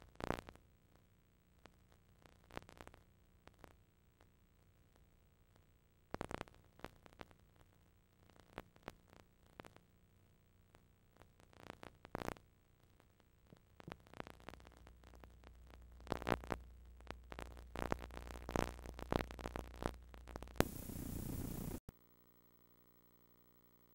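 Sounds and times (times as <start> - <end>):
faint electrical tones: 14.1 - 23.9
loud burst of hiss: 20.6 - 21.8
low hum: 20.6 - 23.9.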